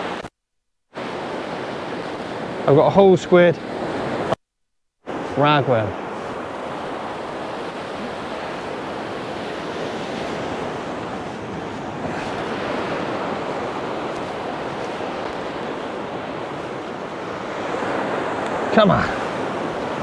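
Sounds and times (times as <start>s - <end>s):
waves on pebble beach: 1.0s - 4.3s, 5.1s - 20.0s
wind on microphone: 5.1s - 20.0s.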